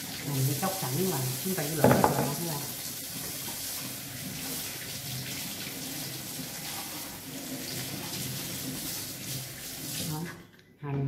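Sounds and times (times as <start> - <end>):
tap running into steel sink: 1.7 - 2.6.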